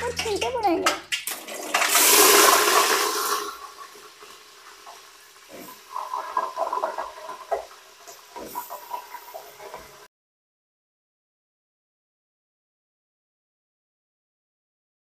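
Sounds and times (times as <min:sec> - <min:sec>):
chicken sizzling in hot oil: 0:01.1 - 0:10.1.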